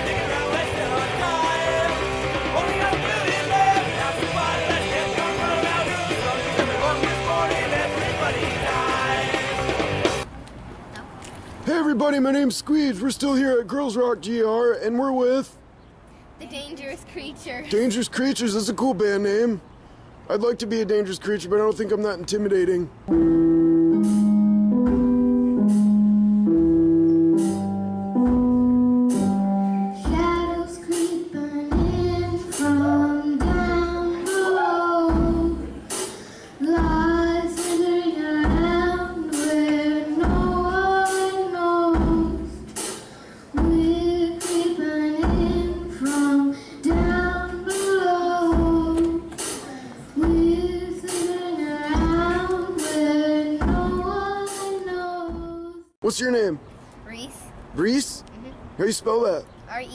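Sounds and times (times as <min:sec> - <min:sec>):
drum kit: 0:00.0 - 0:10.3, 0:23.1 - 0:34.5, 0:35.1 - 0:54.8
held keyboard chords: 0:00.0 - 0:10.3, 0:23.1 - 0:30.7
girl singing: 0:29.8 - 0:35.8, 0:36.6 - 0:42.6, 0:43.5 - 0:55.9.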